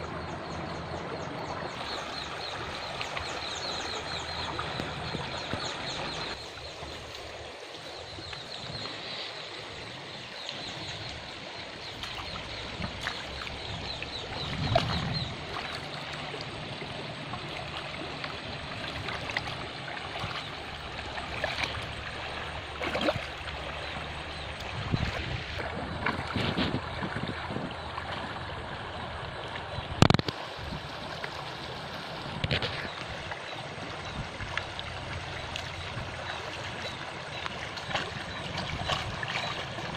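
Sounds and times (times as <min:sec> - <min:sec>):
river water over stones: 0:00.0 - 0:39.9
splashing of person wading: 0:11.8 - 0:27.3, 0:32.5 - 0:39.9.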